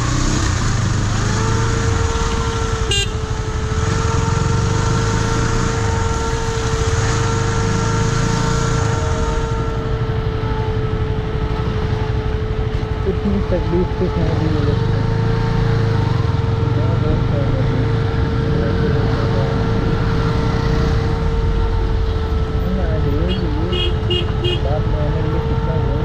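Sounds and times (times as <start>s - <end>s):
tyre noise on wet road: 0.0s - 13.5s
motorcycle engine running: 0.0s - 26.0s.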